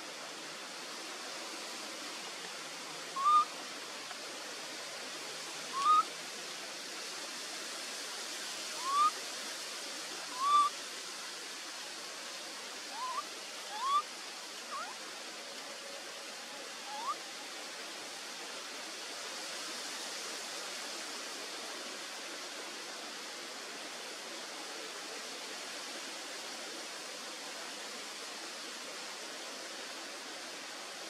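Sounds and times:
forest hiss: 0.0 - 31.0
rising chirp-like animal calls: 3.2 - 3.5, 5.7 - 6.1, 8.8 - 9.1, 10.3 - 10.7, 12.9 - 14.0, 14.7 - 15.0, 16.9 - 17.2.

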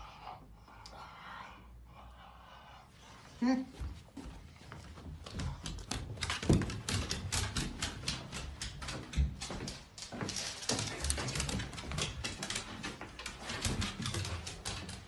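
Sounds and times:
dog claws clicking on wood floor: 5.2 - 15.0.

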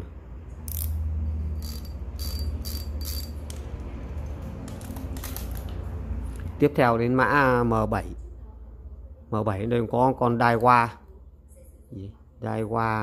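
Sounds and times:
fishing reel ticking: 1.6 - 3.3.

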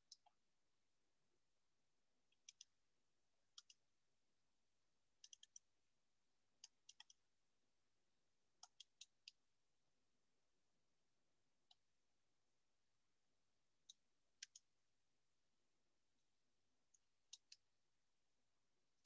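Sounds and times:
computer mouse clicks: 2.3 - 2.7, 3.5 - 3.8, 5.2 - 5.6, 6.6 - 7.2, 8.6 - 9.4, 13.8 - 14.7, 17.0 - 17.7.

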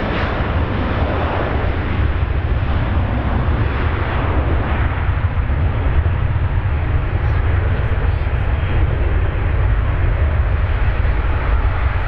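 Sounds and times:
jet engine roar at takeoff: 0.0 - 12.0.

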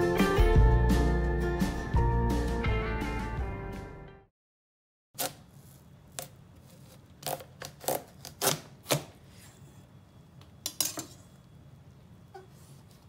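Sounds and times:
knife cutting watermelon: 5.2 - 9.6.

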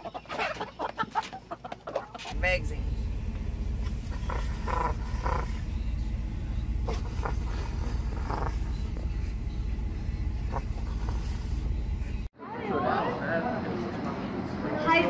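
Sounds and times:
vehicle cabin rumble: 2.3 - 12.3
raccoon chirring: 4.1 - 5.8, 6.8 - 9.2.

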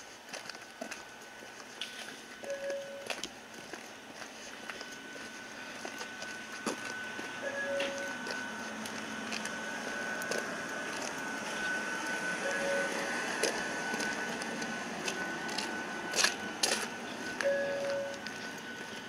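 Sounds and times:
electric train electrical whine: 0.0 - 19.0
short low beep: 2.4 - 3.2, 5.5 - 8.9, 9.8 - 14.4, 17.3 - 18.7.

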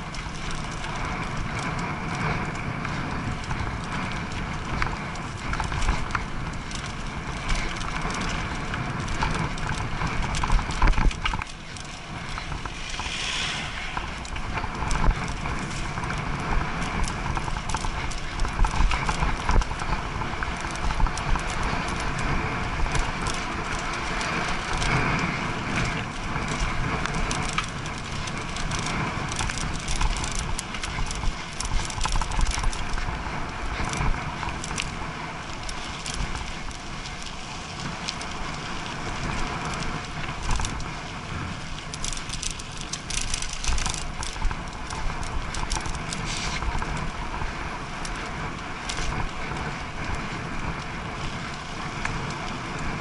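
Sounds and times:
bike rattling over bumpy track: 0.0 - 53.0
low rumble: 4.2 - 20.2.

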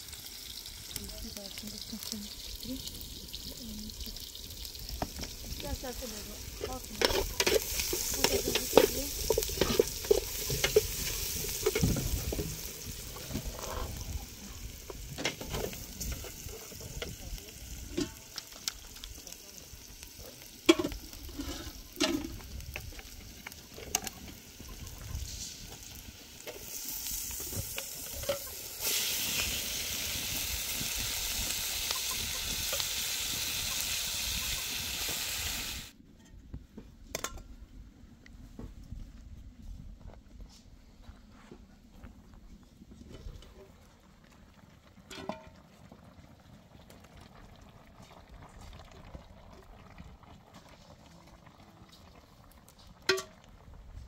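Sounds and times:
food sizzling in a pan: 0.0 - 36.0
utensil scraping a pan: 6.2 - 14.1, 20.7 - 22.4.

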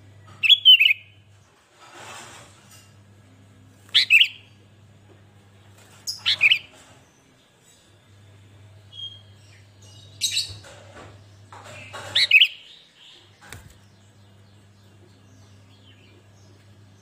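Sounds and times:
faint low hum: 0.0 - 17.0
bird chirping: 0.3 - 1.2, 3.9 - 4.7, 5.9 - 17.0.

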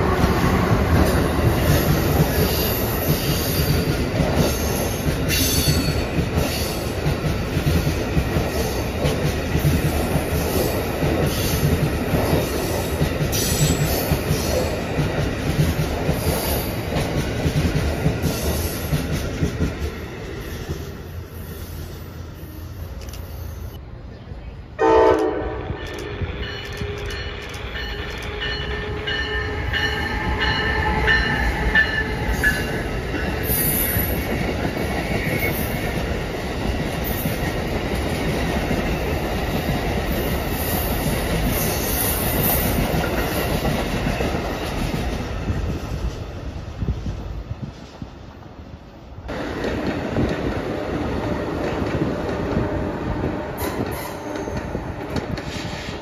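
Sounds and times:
train rumbling and clattering past: 0.0 - 56.0
train horn blast: 24.8 - 27.1.

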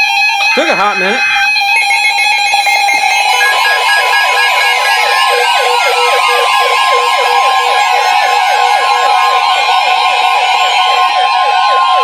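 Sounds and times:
steady alert tone: 0.0 - 6.6
rapid warbling beeps: 0.0 - 8.8.

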